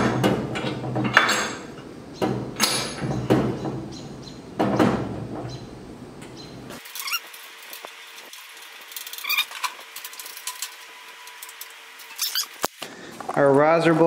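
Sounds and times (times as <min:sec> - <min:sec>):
metal knocks and clanks: 0:00.0 - 0:06.4.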